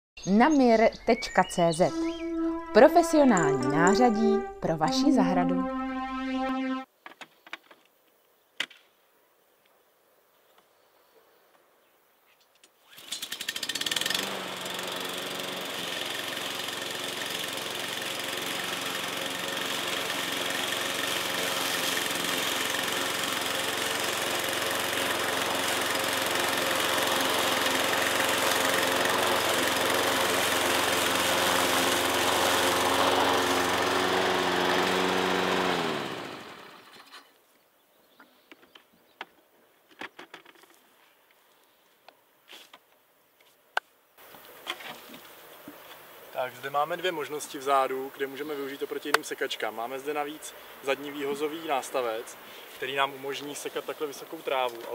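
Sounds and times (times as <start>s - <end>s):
lawn mower engine cutting grass: 12.8s - 37.3s, 46.8s - 54.9s.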